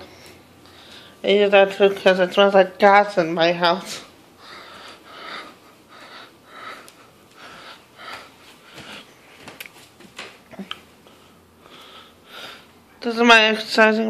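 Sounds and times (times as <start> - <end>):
person breathing close to microphone: 0.0 - 1.2, 4.4 - 9.3, 11.0 - 12.8.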